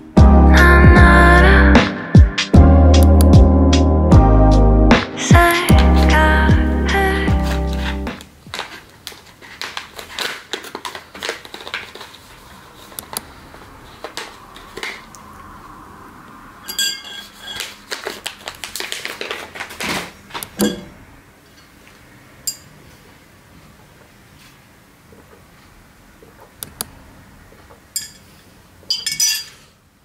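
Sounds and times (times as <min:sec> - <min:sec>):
paper sachet crinkling: 0:07.4 - 0:15.1, 0:17.6 - 0:20.4
ringing glass clink: 0:16.7 - 0:17.6, 0:22.5 - 0:22.7, 0:28.0 - 0:28.3, 0:28.9 - 0:29.6.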